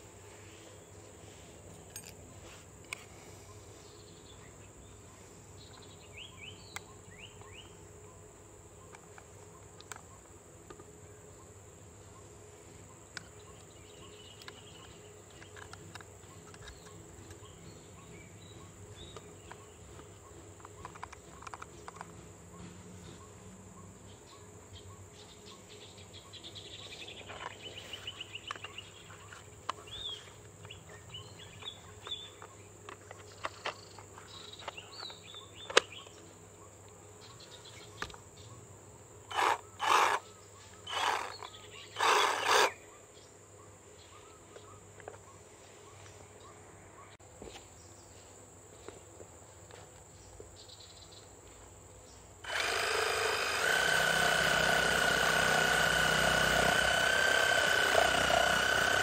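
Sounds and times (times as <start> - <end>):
birds chirping: 2.5 - 49.0
reciprocating saw cutting wood: 39.3 - 40.2, 40.8 - 42.8, 52.4 - 59.0.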